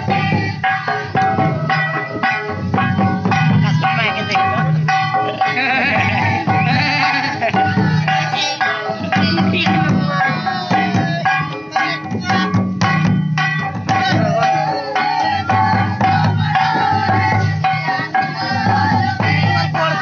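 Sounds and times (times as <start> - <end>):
barrel drums and hand drum: 0.0 - 20.0
person singing: 2.8 - 12.6, 13.9 - 20.0.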